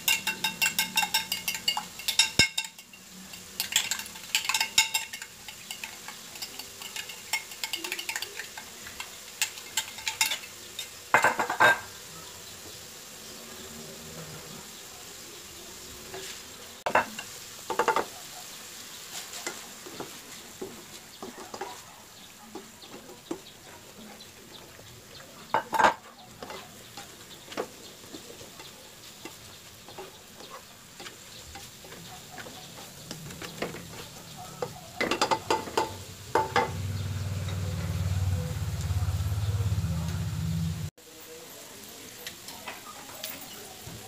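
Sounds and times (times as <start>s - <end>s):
spatula scraping a frying pan: 0.0s - 11.8s, 18.8s - 21.9s, 25.6s - 36.8s
low steady sizzle: 0.0s - 44.0s.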